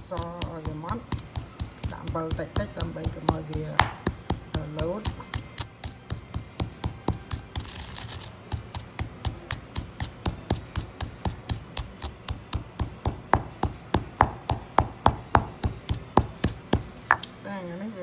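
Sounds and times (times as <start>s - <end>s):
pestle pounding peppercorns in mortar: 0.0s - 17.4s.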